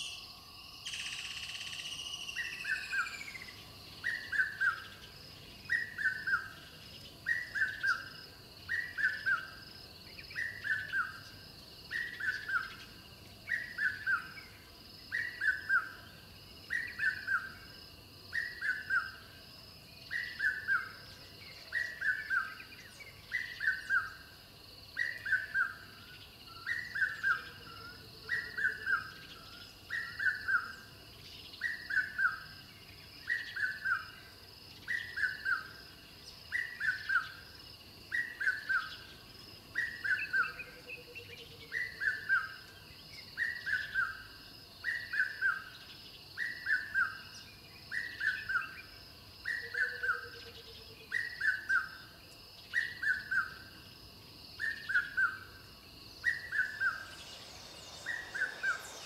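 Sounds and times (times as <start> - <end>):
high-pitched bird chorus: 0.0 - 8.1, 54.6 - 59.0
bird call of descending notes: 56.2 - 59.0.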